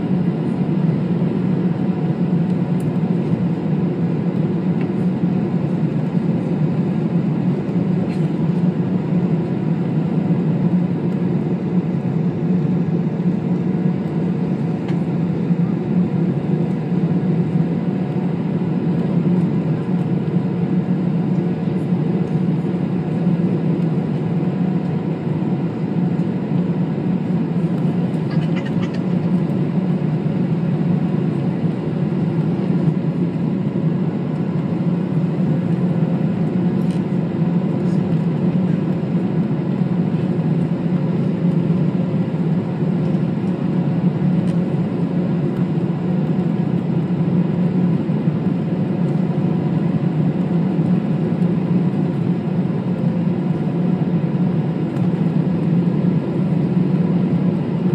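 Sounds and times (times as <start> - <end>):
airplane cabin engine rumble: 0.0 - 57.9.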